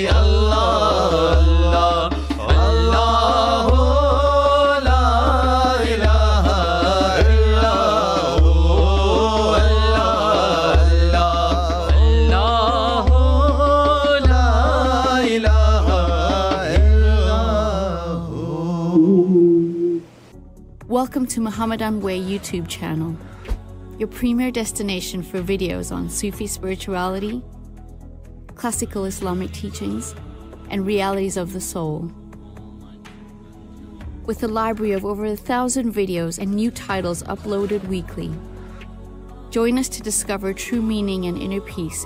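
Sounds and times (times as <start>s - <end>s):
person singing devotional song: 0.0s - 20.0s
deep low pulse: 18.9s - 20.1s.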